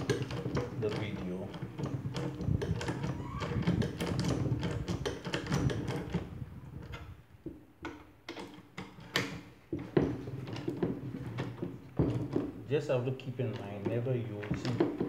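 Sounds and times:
hand ratchet clicking: 0:00.0 - 0:06.3
knocks: 0:09.1 - 0:12.6, 0:13.5 - 0:15.0.

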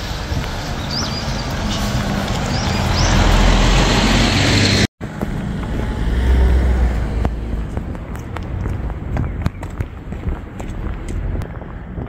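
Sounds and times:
vehicle engine rumble: 0:00.0 - 0:12.0.

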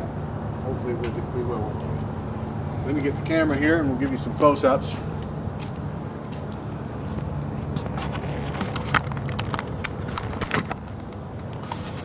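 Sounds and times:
camera handling clicks and rustles: 0:07.8 - 0:12.0.

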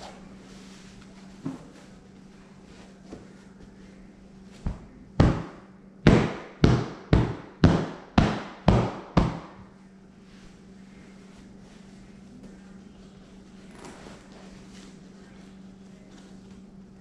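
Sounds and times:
pillow being slapped and pounded: 0:05.2 - 0:09.6.

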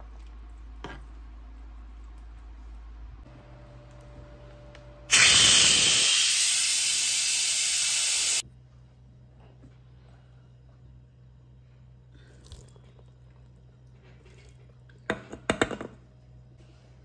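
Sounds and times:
loud steady hiss: 0:05.1 - 0:08.4.

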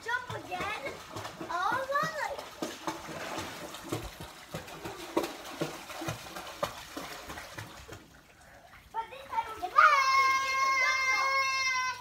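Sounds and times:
child jumping into pool: 0:00.0 - 0:08.2
water splashing in pool: 0:00.0 - 0:12.0.

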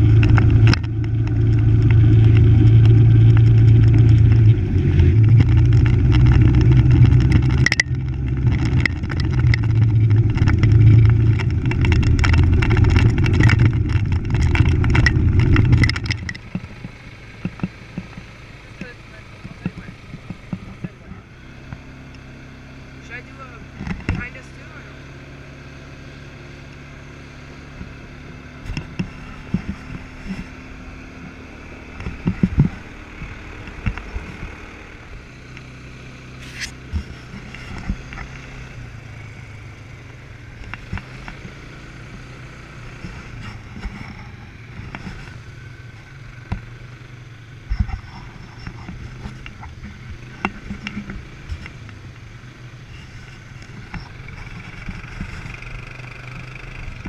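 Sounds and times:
thumps and rattles over bumps: 0:00.0 - 0:21.9, 0:23.0 - 0:24.8, 0:27.8 - 0:34.7, 0:36.4 - 0:39.6, 0:40.4 - 0:46.7, 0:47.6 - 0:57.0
atv engine running: 0:00.0 - 0:57.0.

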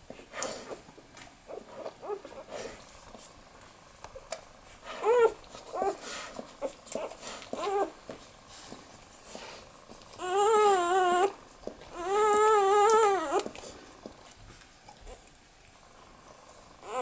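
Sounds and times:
rustling: 0:00.0 - 0:17.0
puppies whimpering: 0:01.5 - 0:02.7, 0:05.0 - 0:08.0, 0:10.1 - 0:13.8, 0:16.8 - 0:17.0.

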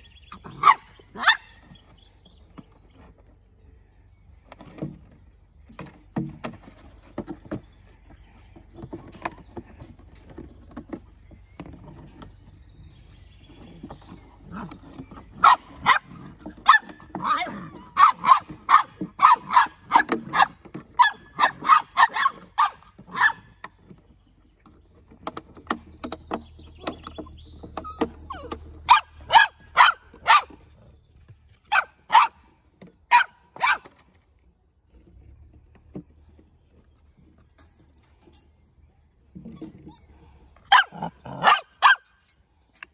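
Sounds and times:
puppies playing: 0:00.0 - 0:34.1, 0:35.0 - 0:42.2
puppies barking: 0:00.2 - 0:01.8, 0:14.3 - 0:23.6, 0:26.9 - 0:30.8, 0:31.6 - 0:33.9, 0:39.5 - 0:42.3.

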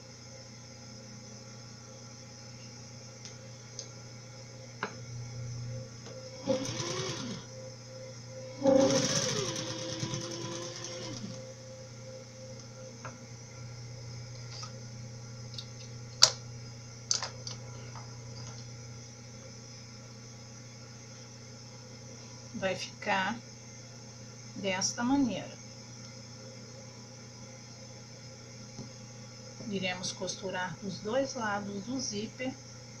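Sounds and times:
electric sewing machine stitching: 0:06.3 - 0:07.5, 0:08.6 - 0:11.4.

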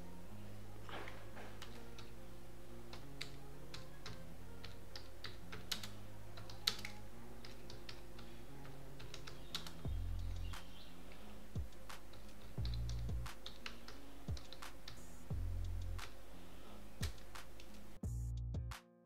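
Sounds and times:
typing on computer keyboard: 0:02.9 - 0:08.3, 0:09.0 - 0:10.5, 0:11.8 - 0:15.0.

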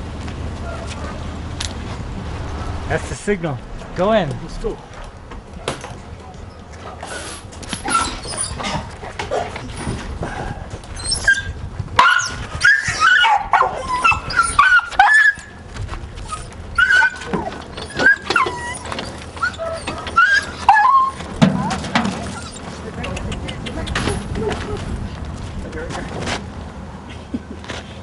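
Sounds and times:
dog yelping and whining: 0:07.1 - 0:09.9, 0:10.9 - 0:15.6, 0:16.2 - 0:22.7.

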